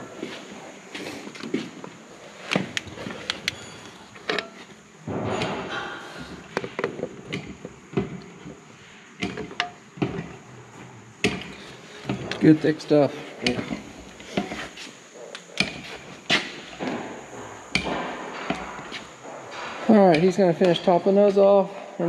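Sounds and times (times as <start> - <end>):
hand tools clinking on metal: 15.4 - 21.6.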